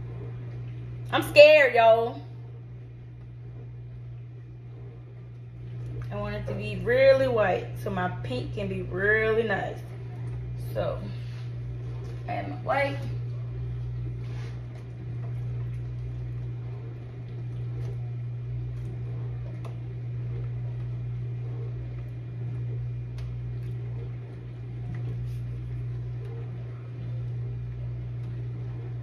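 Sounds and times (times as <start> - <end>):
vent fan humming: 0.0 - 29.0.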